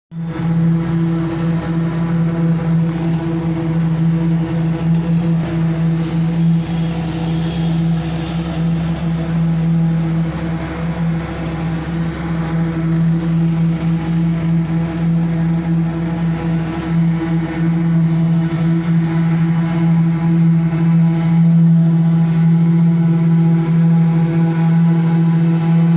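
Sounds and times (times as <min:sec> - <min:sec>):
heavy machinery diesel engines: 0:00.1 - 0:25.9.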